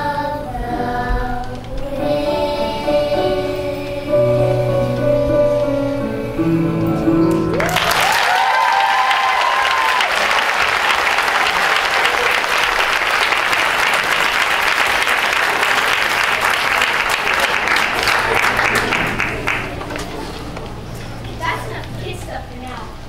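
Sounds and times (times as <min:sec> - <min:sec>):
audience applauding: 0:07.4 - 0:20.4.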